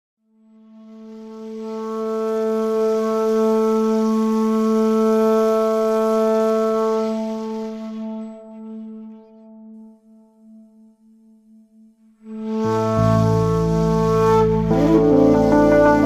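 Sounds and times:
horn blowing long breathy note: 0:12.3 - 0:16.0.

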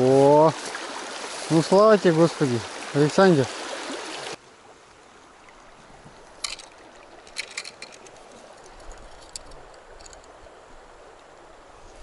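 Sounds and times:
river flowing over stones: 0:00.0 - 0:11.8.

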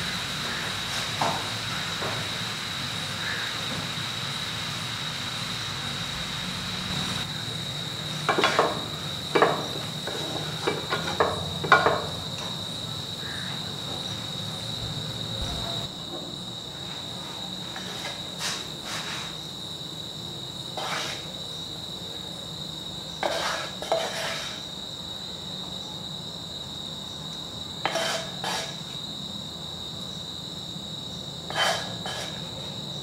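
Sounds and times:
onions sizzling in a frying pan: 0:00.0 - 0:13.4
wooden spatula scraping a pan: 0:08.3 - 0:08.8, 0:09.4 - 0:12.0, 0:17.7 - 0:19.4, 0:20.8 - 0:21.3, 0:23.2 - 0:24.6, 0:27.9 - 0:28.8, 0:31.5 - 0:32.4.

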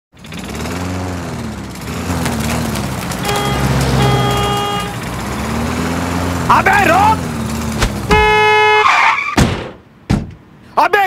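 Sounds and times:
truck engine running: 0:00.1 - 0:08.9
truck horn honking: 0:03.1 - 0:09.3.

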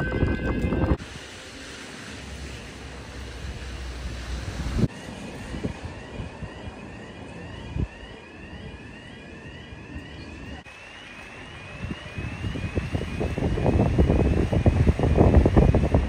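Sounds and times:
storm wind buffeting microphone: 0:00.0 - 0:01.1, 0:03.4 - 0:06.9, 0:11.6 - 0:16.0.

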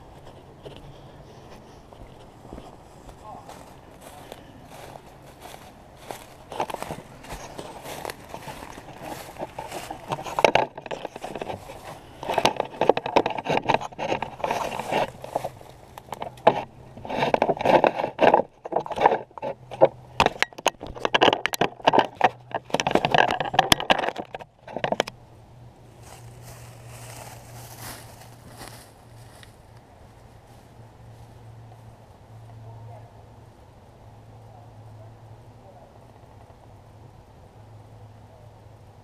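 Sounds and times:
footsteps crunching dry leaves: 0:00.0 - 0:12.9, 0:14.0 - 0:16.0, 0:25.9 - 0:31.5
plastic panel scraping and crackling: 0:05.4 - 0:25.1.

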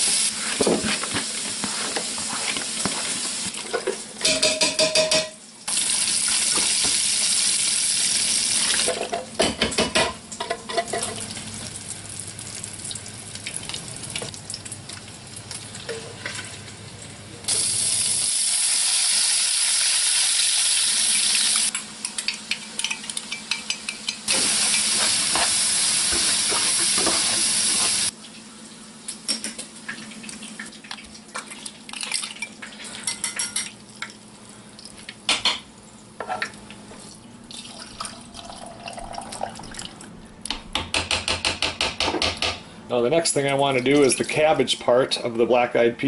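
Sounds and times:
utensil scraping in a pan: 0:00.1 - 0:03.5, 0:24.3 - 0:28.1
meat sizzling in a frying pan: 0:05.7 - 0:08.9, 0:17.5 - 0:22.2, 0:24.2 - 0:28.1
spoon clinking and scraping crock: 0:32.2 - 0:33.7.

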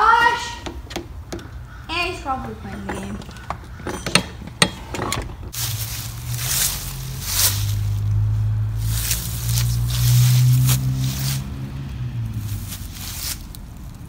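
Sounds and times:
door clicks and knocks: 0:02.8 - 0:05.5.

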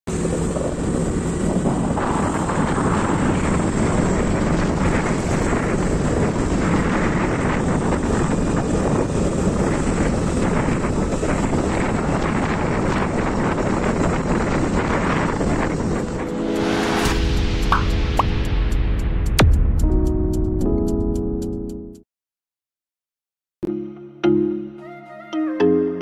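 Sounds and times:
vehicle road rumble: 0:00.1 - 0:18.5
wind buffeting microphone: 0:00.1 - 0:18.5.

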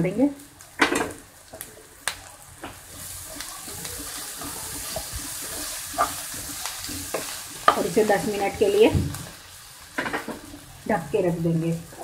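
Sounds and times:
banana frying in a pan: 0:00.0 - 0:12.0
spatula tapping a pan: 0:02.6 - 0:08.0.

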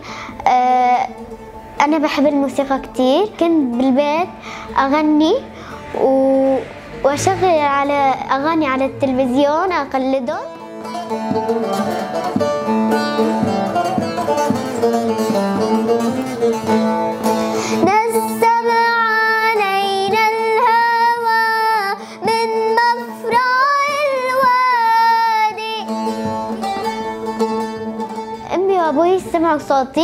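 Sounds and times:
girl singing: 0:00.0 - 0:01.2, 0:01.8 - 0:10.5, 0:17.6 - 0:26.1, 0:28.4 - 0:30.0
lute plucked and strummed: 0:00.0 - 0:30.0.

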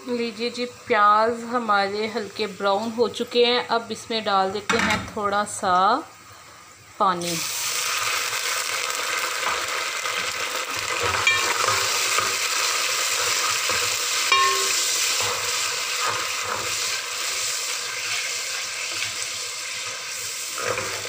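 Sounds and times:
onions sizzling in hot oil: 0:00.0 - 0:21.0
spatula knocking against a pot: 0:14.3 - 0:14.8.

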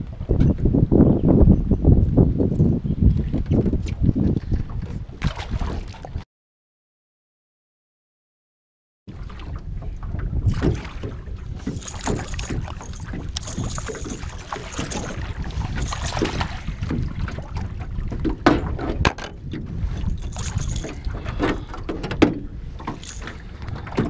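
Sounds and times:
wind buffeting microphone: 0:00.0 - 0:06.2, 0:09.1 - 0:24.0
water lapping against boat hull: 0:03.1 - 0:06.2, 0:09.1 - 0:24.0
splashes and knocks: 0:04.7 - 0:06.2, 0:09.1 - 0:24.0.

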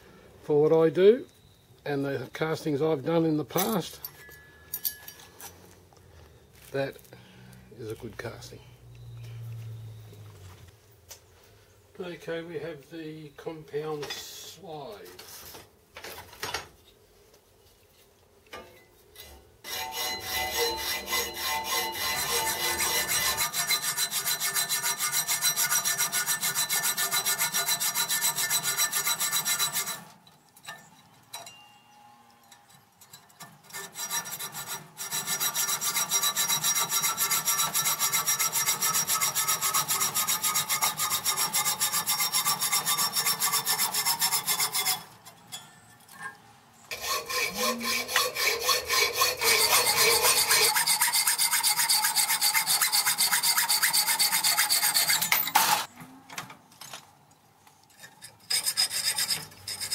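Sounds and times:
hacksaw cutting metal: 0:19.6 - 0:31.5, 0:33.0 - 0:45.6, 0:46.9 - 0:55.9, 0:58.0 - 0:59.9.

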